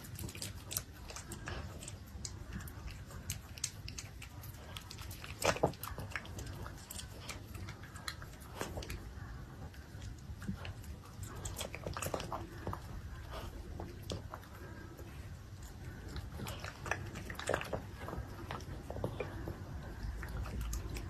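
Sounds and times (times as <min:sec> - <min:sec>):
dog chewing food: 0:00.0 - 0:21.0.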